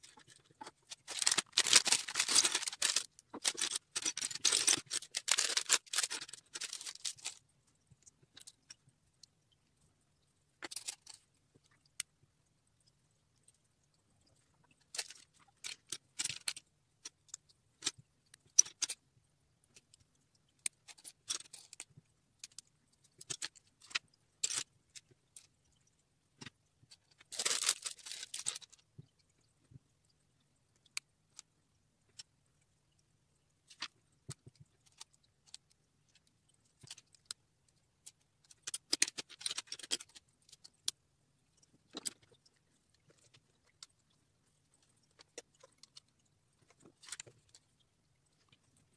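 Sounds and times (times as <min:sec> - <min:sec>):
plastic bricks clicking and rattling: 0:00.0 - 0:07.4, 0:27.2 - 0:28.7, 0:38.0 - 0:41.0.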